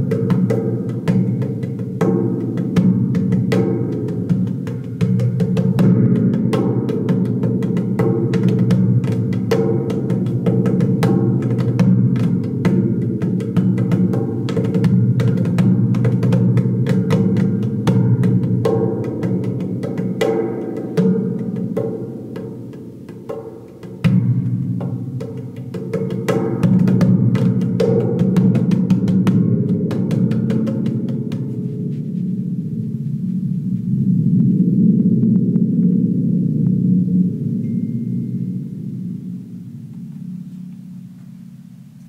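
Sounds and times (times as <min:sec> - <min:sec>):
deep reverberant spring rumble: 0:31.2 - 0:42.0.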